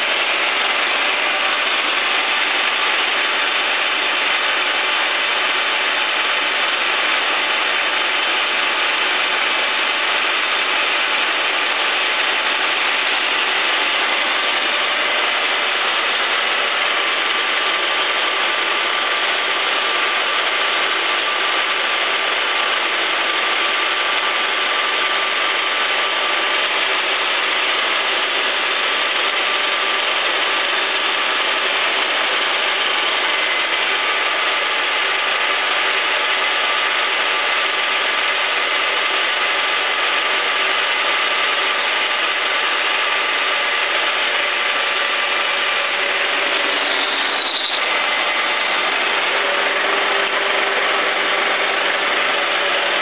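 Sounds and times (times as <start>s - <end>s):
lathe cutting steel: 0.0s - 53.0s
lathe gears whirring: 0.0s - 53.0s.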